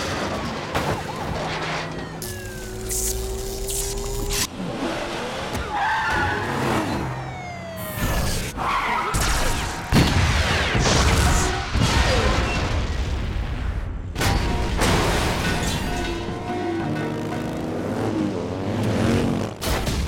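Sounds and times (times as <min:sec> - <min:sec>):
vehicle engines: 0:00.0 - 0:09.9, 0:15.8 - 0:20.0.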